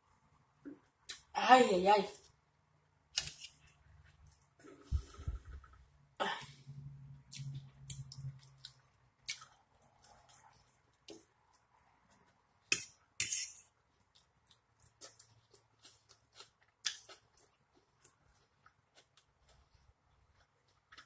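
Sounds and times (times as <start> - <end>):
chewing food: 7.3 - 12.4, 14.0 - 21.0.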